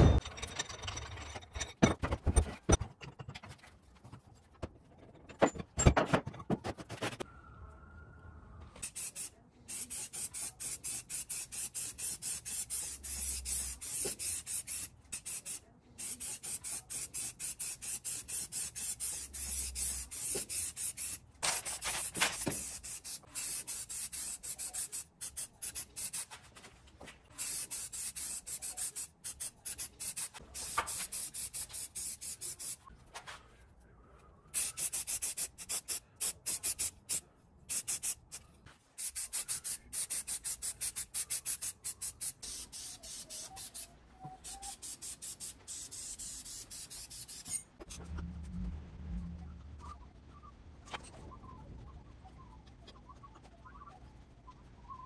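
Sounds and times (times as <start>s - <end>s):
spray paint can hissing: 8.8s - 26.4s, 27.4s - 32.8s, 34.6s - 38.4s, 39.0s - 47.6s.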